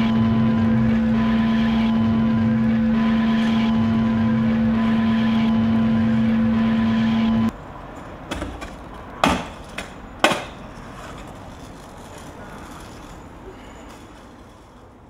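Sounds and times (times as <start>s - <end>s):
loud steady machine hum: 0.0s - 7.5s.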